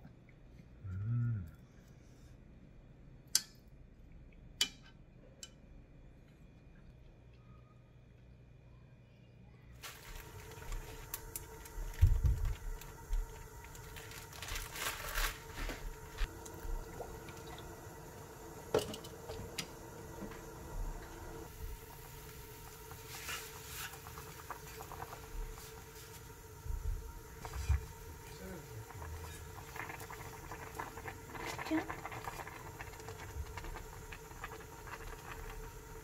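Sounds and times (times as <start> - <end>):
faint hum: 0.0 - 36.0
broth simmering in a pot: 9.8 - 36.0.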